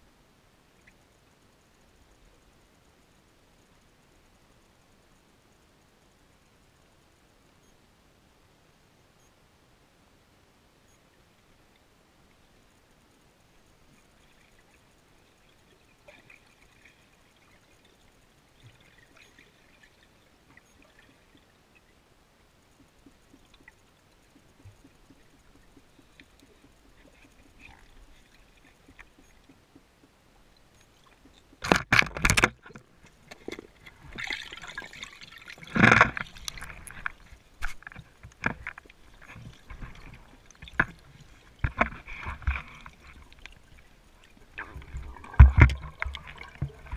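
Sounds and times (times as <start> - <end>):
faint hiss: 0.0 - 31.7
small ticks: 0.7 - 5.7, 10.9 - 34.2, 35.3 - 46.9
underwater gurgling and sloshing: 10.9 - 46.9.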